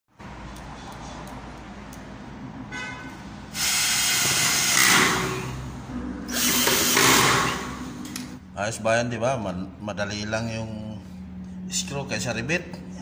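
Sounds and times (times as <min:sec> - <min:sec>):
cordless drill driving screws into metal: 0:03.6 - 0:05.4, 0:06.3 - 0:07.8.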